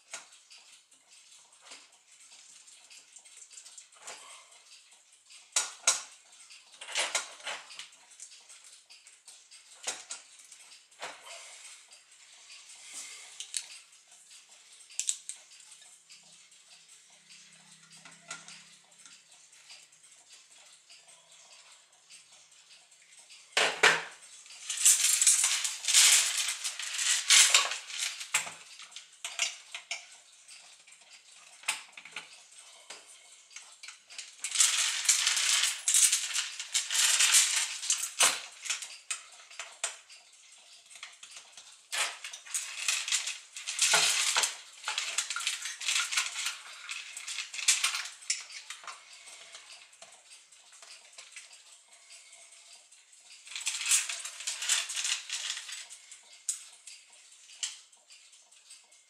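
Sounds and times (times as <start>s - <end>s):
clock parts clinking: 0.0s - 58.9s.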